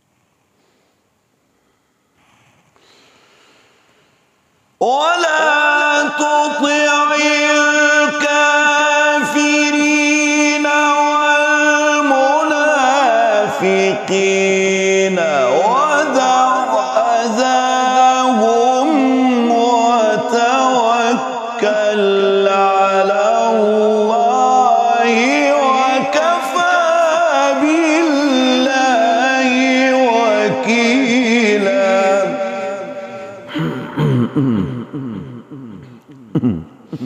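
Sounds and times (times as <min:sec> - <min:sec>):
man chanting melodically: 0:04.8 - 0:37.0.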